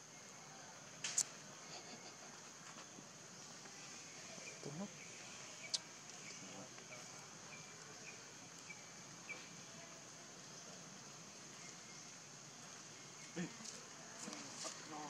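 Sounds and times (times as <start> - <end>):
sharp click: 1.0 - 1.3.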